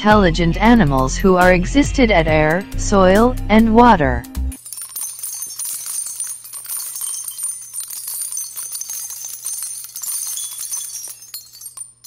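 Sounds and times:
jingling bells: 4.5 - 12.0.

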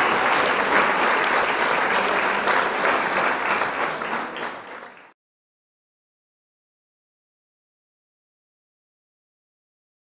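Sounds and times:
crowd clapping: 0.0 - 5.2.

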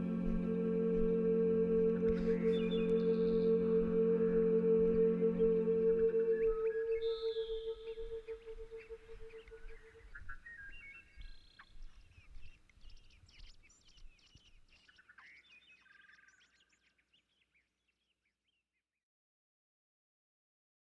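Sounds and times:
small birds chirping and trilling: 2.3 - 18.6.

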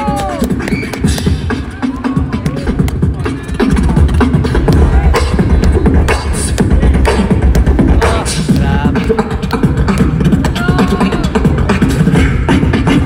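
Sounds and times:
beatboxing into a microphone: 0.0 - 13.0.

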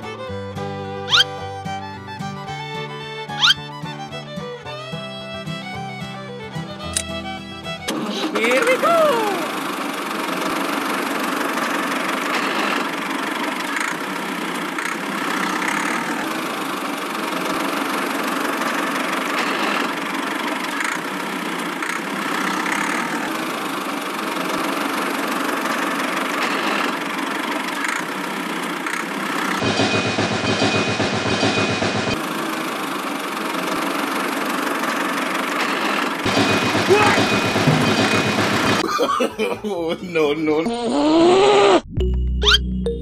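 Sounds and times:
toy tractor engine running: 1.1 - 1.8, 6.0 - 29.6, 32.2 - 38.9.

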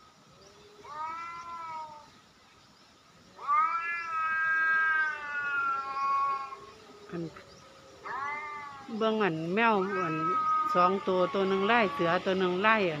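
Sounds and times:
cat yowling: 0.8 - 2.1, 3.4 - 7.2, 7.8 - 12.4.

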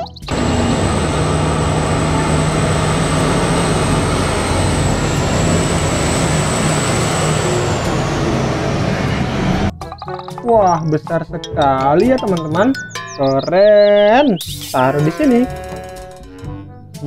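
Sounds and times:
dump truck engine driving past: 0.3 - 9.7.

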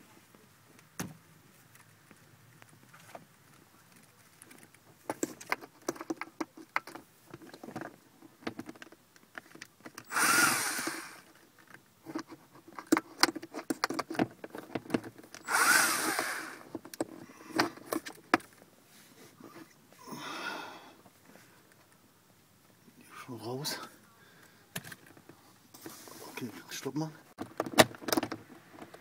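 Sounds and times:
tool and screws rattling: 4.5 - 18.5
electric screwdriver spinning: 10.0 - 11.3, 15.4 - 16.7.

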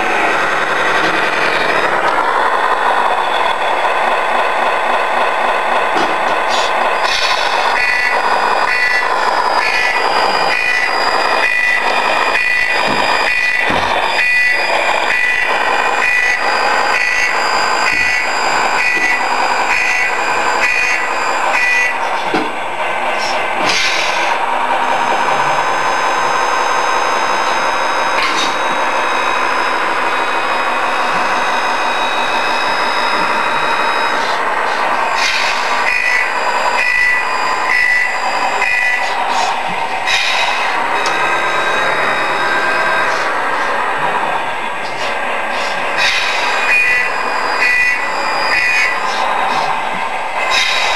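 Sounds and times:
toy truck engine drone: 6.5 - 22.3, 22.9 - 45.1, 45.7 - 50.9
reversing beeper: 7.0 - 22.2, 24.2 - 43.7, 46.0 - 49.7.

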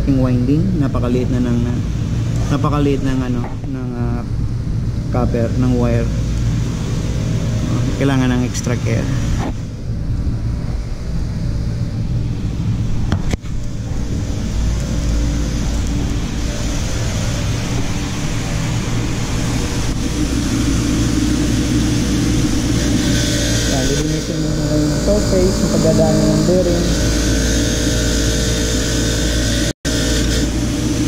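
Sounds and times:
bench grinder motor humming: 19.5 - 31.0.

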